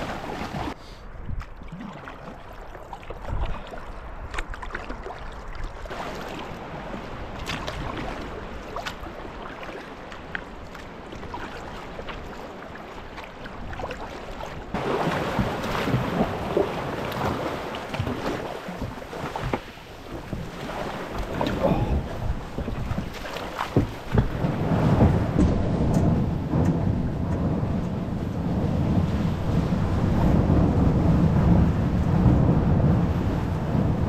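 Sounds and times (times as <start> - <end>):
paddle strokes splashing: 0.0 - 28.0
water against hull: 0.0 - 34.0
waves washing: 0.0 - 34.0
wind on microphone: 13.4 - 34.0.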